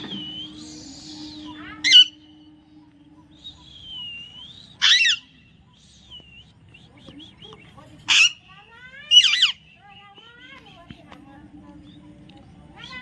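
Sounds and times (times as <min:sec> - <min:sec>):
soft whistled bird notes: 0:00.0 - 0:10.6
parrot squawks: 0:01.4 - 0:02.4, 0:04.8 - 0:05.4, 0:08.1 - 0:09.6.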